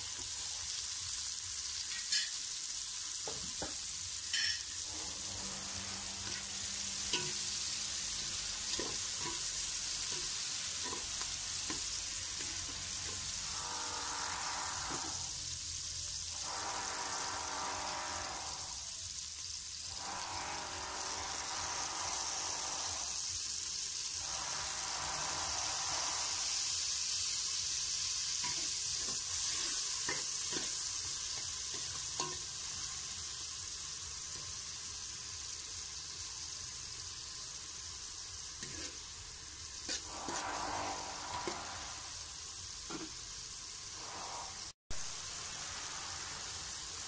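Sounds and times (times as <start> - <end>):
vegetables sizzling in oil: 0.0 - 47.0
metal spatula scraping pot: 4.3 - 15.4, 28.4 - 32.6, 38.6 - 39.1, 39.8 - 42.3, 42.9 - 43.2.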